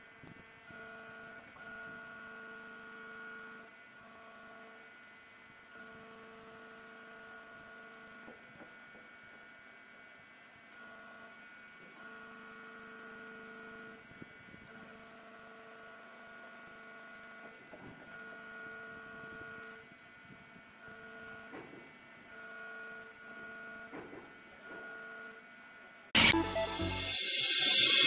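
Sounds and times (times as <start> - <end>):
brief rising whines: 26.2 - 28.0
hydraulic power unit drone: 26.2 - 28.0.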